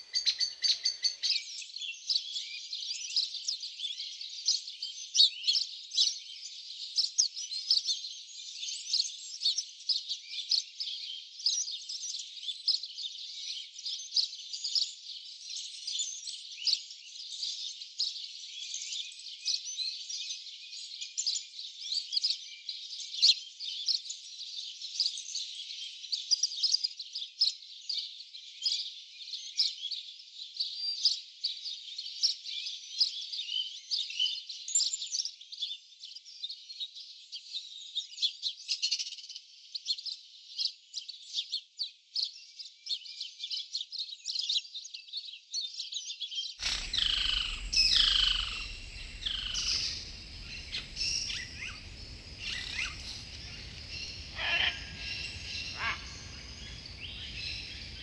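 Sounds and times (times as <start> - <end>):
small birds chirping: 0.0 - 36.7, 37.3 - 58.0
bird calls sliding down in pitch: 46.6 - 50.0
low background noise: 46.6 - 58.0.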